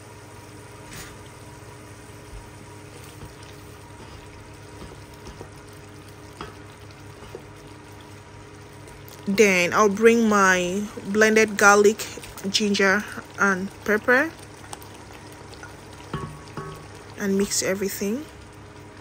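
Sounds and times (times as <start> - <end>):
sauce bubbling in pot: 0.0 - 19.0
wooden spoon stirring: 2.9 - 8.1
spoon knocking against pot: 16.1 - 16.9.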